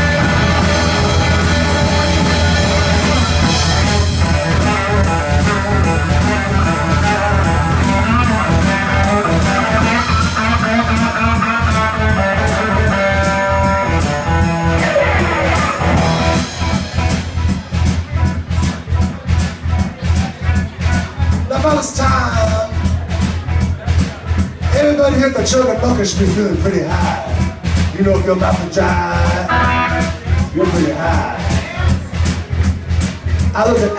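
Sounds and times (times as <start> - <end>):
electric guitar lines: 0.0 - 17.6, 28.9 - 31.3
drum kit steady beat: 0.0 - 33.9
electric bass: 0.0 - 33.9.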